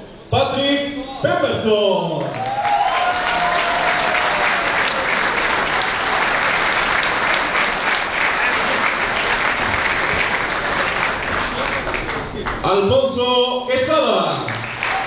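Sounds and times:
audience applauding: 2.2s - 13.1s, 14.2s - 15.0s.

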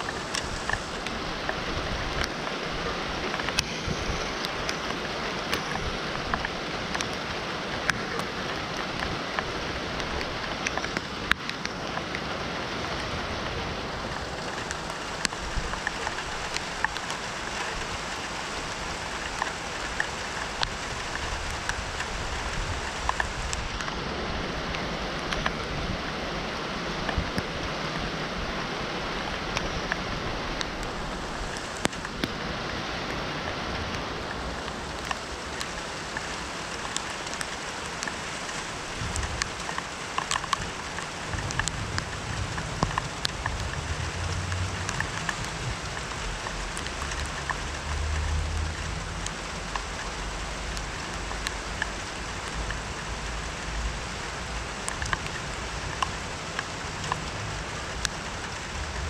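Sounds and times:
raindrops ticking on a surface: 0.0s - 59.0s
steady rain falling: 0.0s - 59.0s
low rumble: 41.2s - 49.7s.

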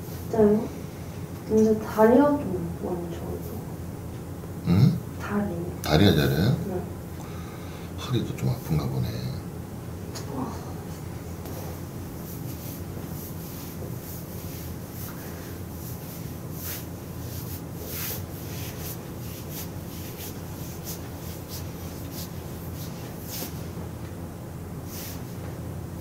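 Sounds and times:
steady low hum: 0.0s - 26.0s
hands rubbing on fabric: 11.4s - 23.8s, 24.9s - 25.4s.

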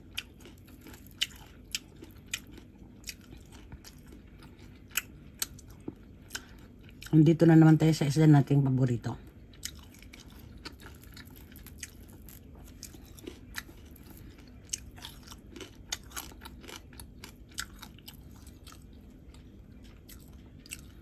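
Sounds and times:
chewing: 0.0s - 7.2s, 9.3s - 21.0s
crisp crackles of fried fish: 9.4s - 21.0s.

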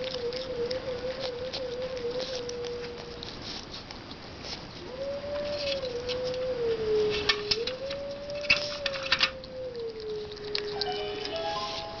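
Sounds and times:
animal chewing wetly: 0.0s - 11.9s
steady wavering tone: 10.7s - 12.0s.

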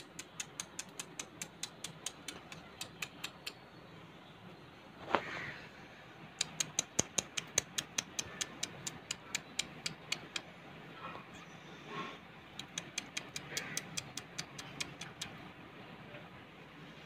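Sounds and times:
beaks tapping on concrete: 0.0s - 3.6s, 6.4s - 10.5s, 12.6s - 15.4s.

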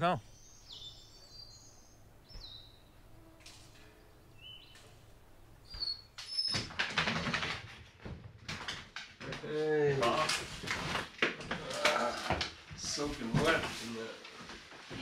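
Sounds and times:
bird chirps: 0.0s - 6.7s.

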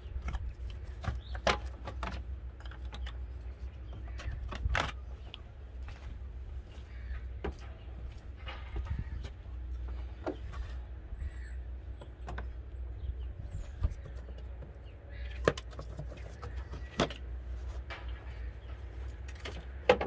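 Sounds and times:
low steady rumble: 0.0s - 20.0s.

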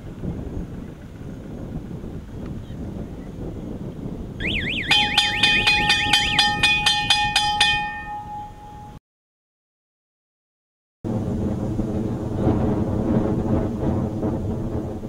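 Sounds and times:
loud multi-tone beeping: 4.4s - 9.0s
warbling electronic siren: 4.4s - 9.0s.

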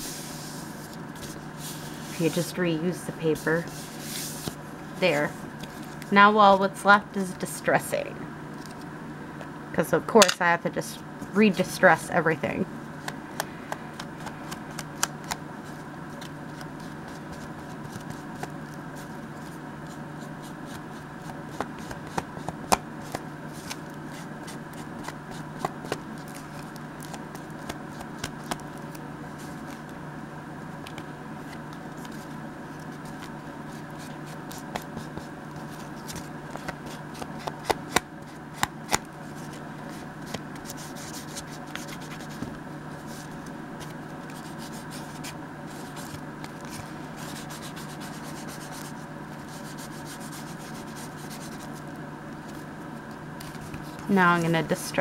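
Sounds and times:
steady low hum: 0.0s - 55.0s
paper ticks and scrapes: 30.9s - 51.8s.

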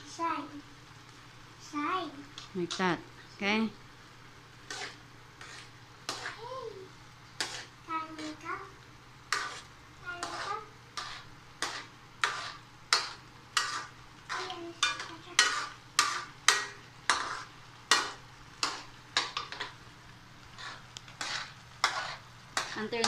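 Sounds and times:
utensil scraping nuts in a pot: 4.6s - 6.5s, 7.4s - 8.5s, 9.3s - 19.8s, 20.4s - 23.0s.

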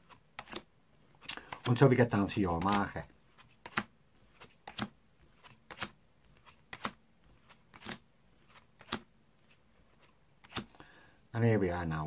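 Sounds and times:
playing cards snapping on mat: 2.5s - 3.0s, 3.6s - 3.9s, 4.6s - 6.0s, 6.7s - 7.0s, 7.7s - 8.0s, 8.8s - 9.1s, 10.4s - 10.7s.

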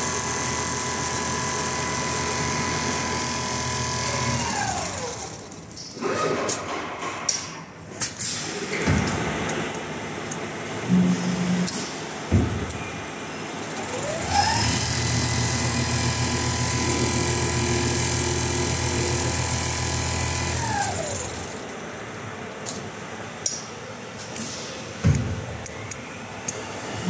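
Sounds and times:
sewing machine running: 0.0s - 5.8s, 13.6s - 21.7s.

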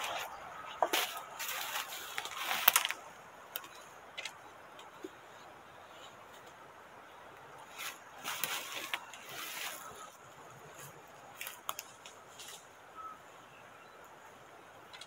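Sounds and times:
footsteps on dry leaves: 0.0s - 3.0s, 7.6s - 12.8s.

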